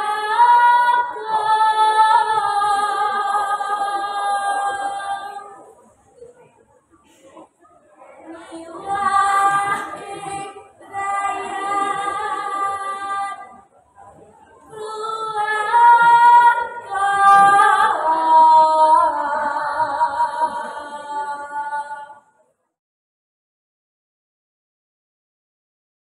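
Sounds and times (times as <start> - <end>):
girl singing unaccompanied: 0.0 - 5.6, 8.3 - 13.7, 14.7 - 22.3.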